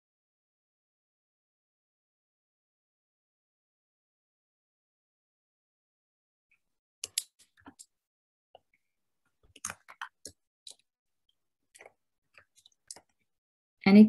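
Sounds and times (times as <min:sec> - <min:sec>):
computer clicks and taps: 0:07.0 - 0:07.9, 0:09.4 - 0:10.9.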